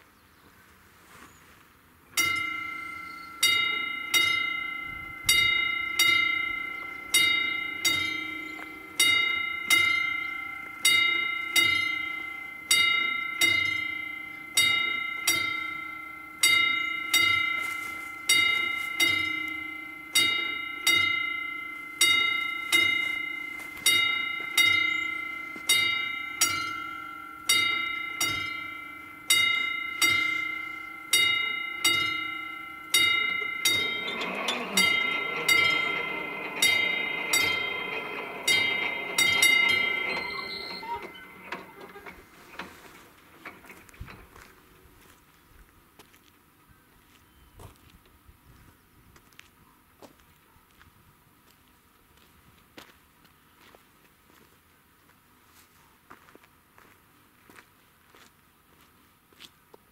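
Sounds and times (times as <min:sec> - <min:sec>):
level crossing warning bell: 0:02.1 - 0:45.2.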